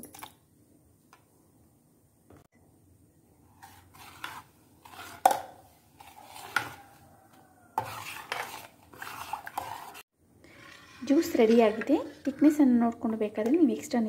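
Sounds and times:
metal spoon scraping steel bowl: 3.6s - 5.4s, 6.0s - 7.0s, 7.8s - 13.2s.

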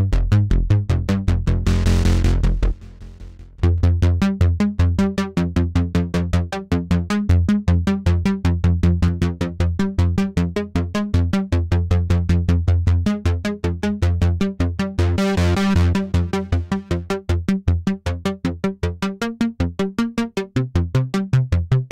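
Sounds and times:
synthesizer bass notes: 0.0s - 4.7s, 15.0s - 17.1s.

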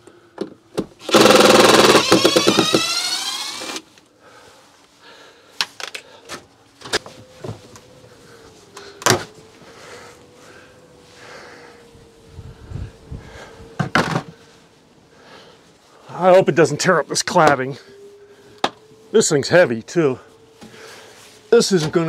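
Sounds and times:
power tool winding down: 1.0s - 3.9s
knocks and clunks: 13.8s - 14.3s.

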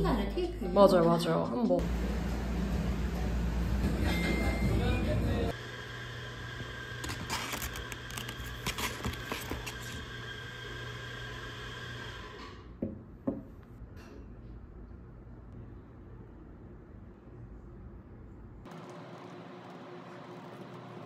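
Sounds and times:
paper bag rustling: 7.0s - 10.1s.

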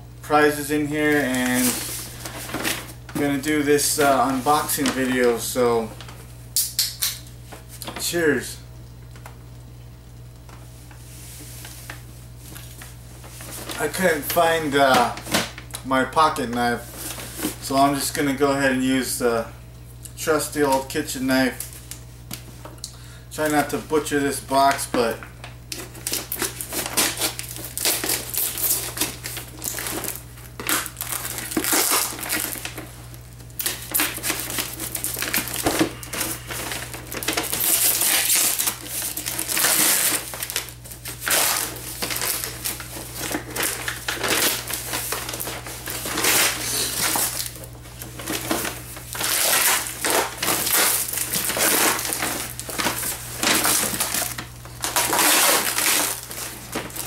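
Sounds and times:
cardboard scraping and tearing: 48.2s - 57.0s.

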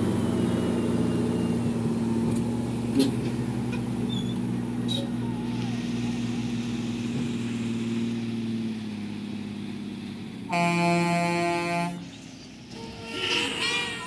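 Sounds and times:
diesel truck engine running: 0.0s - 14.0s
truck air horn: 10.5s - 12.1s, 12.7s - 14.0s.

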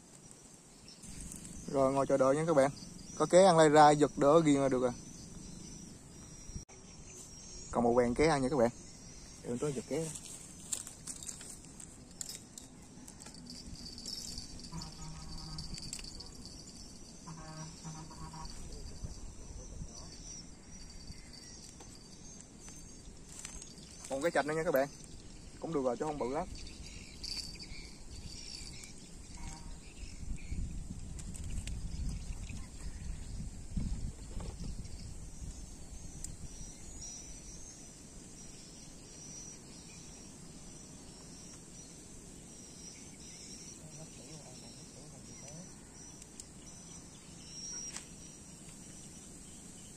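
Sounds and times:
insects chirring: 0.0s - 49.9s
wind rumbling on microphone: 10.2s - 24.1s, 24.8s - 37.7s
wind rumble: 24.9s - 38.2s.

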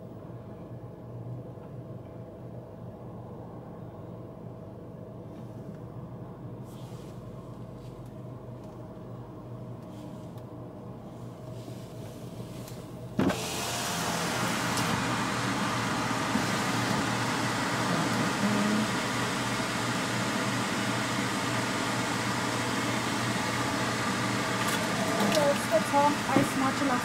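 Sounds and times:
quiet cabin hum: 0.0s - 13.6s, 14.2s - 27.0s
car engines outside: 5.8s - 27.0s
car power window opening: 13.2s - 19.6s.

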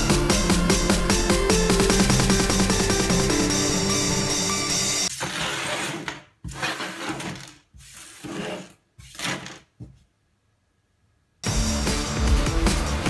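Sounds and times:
electronic background music: 0.0s - 5.1s, 11.4s - 13.0s
small objects rustling and scraping: 5.2s - 9.6s.

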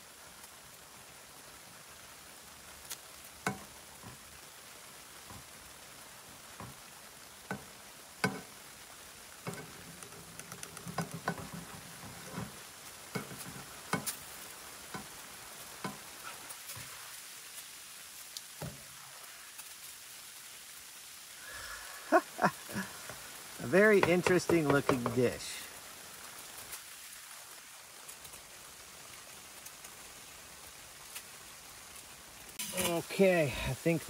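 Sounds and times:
patties sizzling in pan: 0.0s - 34.0s
sharp clicks and taps: 23.8s - 25.3s.

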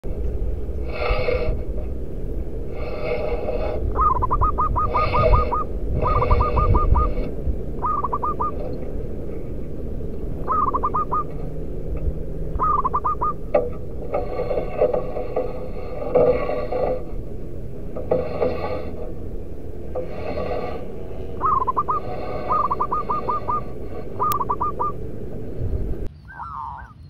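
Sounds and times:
low rumble: 0.0s - 26.2s
dove cooing: 3.6s - 9.6s, 10.3s - 14.3s, 21.4s - 25.4s.

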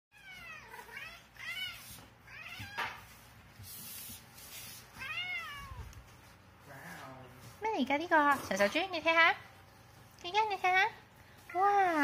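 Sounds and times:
cat meowing: 5.0s - 6.0s.

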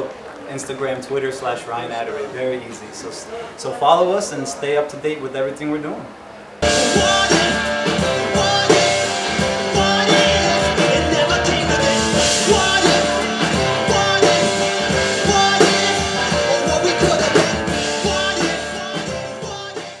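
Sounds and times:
drums: 6.6s - 20.0s
electric guitar: 6.6s - 20.0s
person singing: 6.6s - 20.0s.

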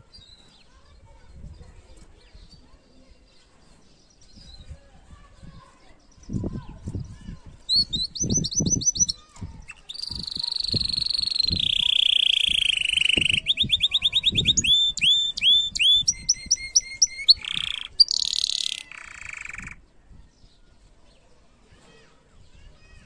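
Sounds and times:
canary singing: 7.6s - 19.8s.

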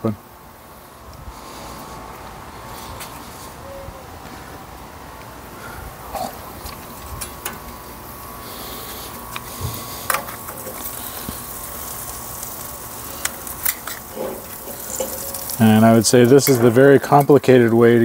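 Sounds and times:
meat sizzling on grill: 6.3s - 18.0s
metal tongs tapping grill: 7.2s - 7.7s, 10.1s - 10.9s, 13.2s - 15.6s, 16.2s - 17.8s.

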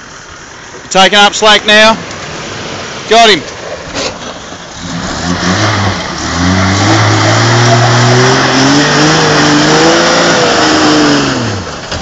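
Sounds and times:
car engine revving under load: 3.8s - 12.0s.

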